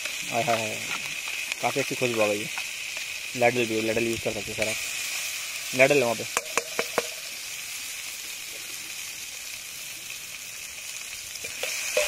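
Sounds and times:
vegetables sizzling in butter: 0.0 - 12.0.

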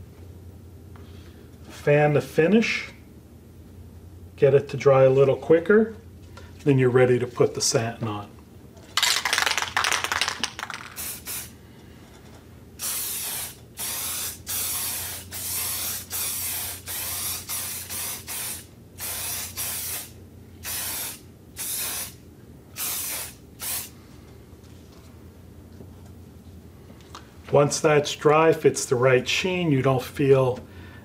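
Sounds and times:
aerosol can spraying hisses: 22.8 - 23.9.

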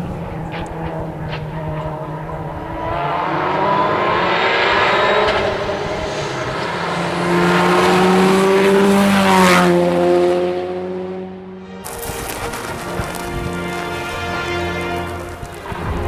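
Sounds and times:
racing car engine at full throttle: 0.0 - 11.7.

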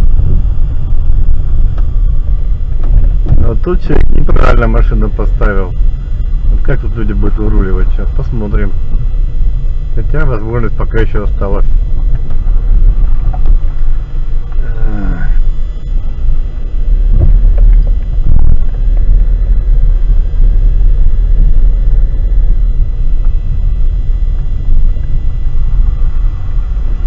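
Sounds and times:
car rumble on dirt road: 0.0 - 27.0.

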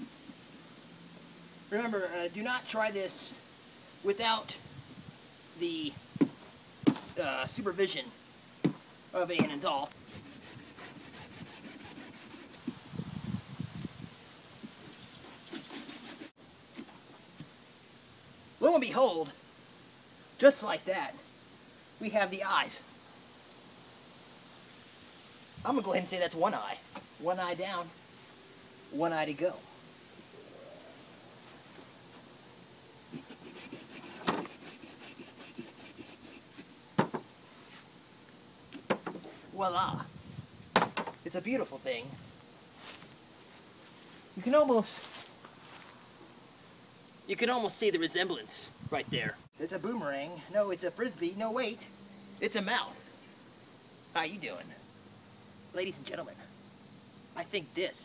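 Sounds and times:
knife sawing through pumpkin: 10.0 - 12.6, 15.2 - 16.4, 33.1 - 36.7.

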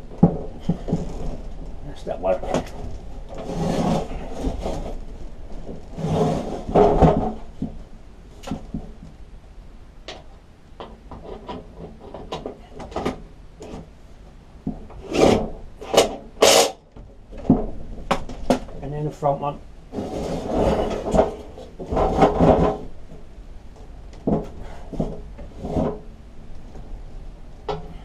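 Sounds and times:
mower deck scraping on wood: 0.2 - 7.8, 19.9 - 23.0, 24.3 - 26.1
knocking: 5.6 - 7.8.

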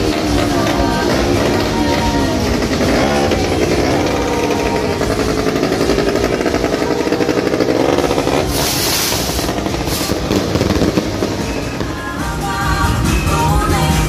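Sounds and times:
motorcycle engine revving: 0.0 - 14.0
loud hissing burst: 4.1 - 11.7.

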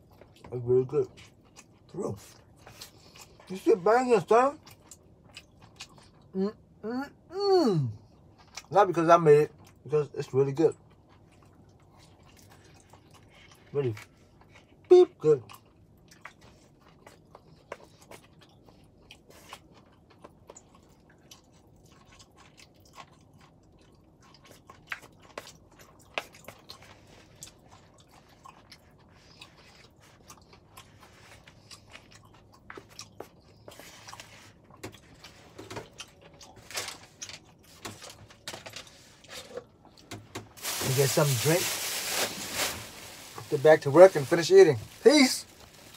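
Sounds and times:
person chewing noodles: 0.0 - 6.8, 7.7 - 8.8, 9.4 - 9.9, 10.7 - 45.9.

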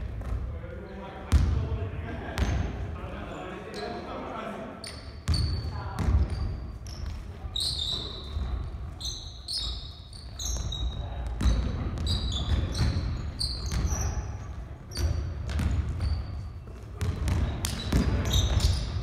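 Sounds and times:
sneakers squeaking on floor: 3.3 - 4.1, 4.8 - 19.0
basketball bouncing on wooden floor: 10.5 - 14.0, 15.0 - 16.2, 17.0 - 19.0.

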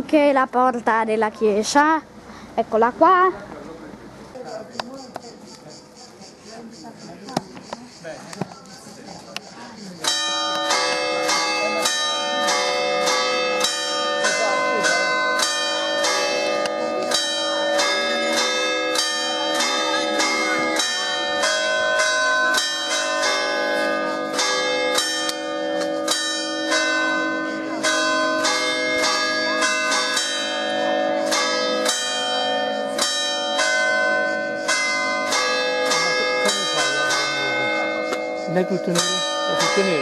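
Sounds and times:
church bells ringing: 10.0 - 40.0.

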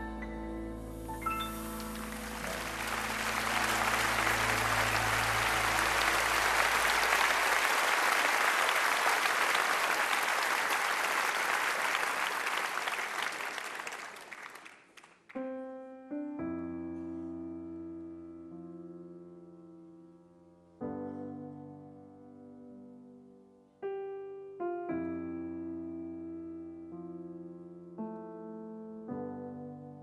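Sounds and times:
piano chords ringing: 0.0 - 8.1, 15.4 - 30.0
audience applauding: 1.2 - 15.4.

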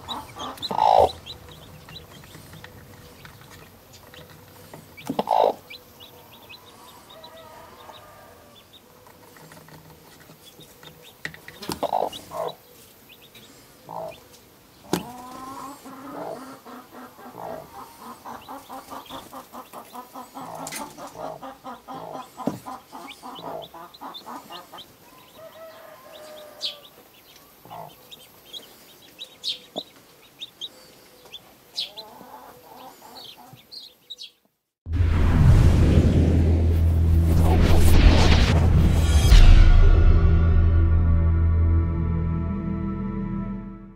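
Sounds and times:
hen clucking: 0.0 - 34.3
chicks peeping: 0.0 - 34.5.

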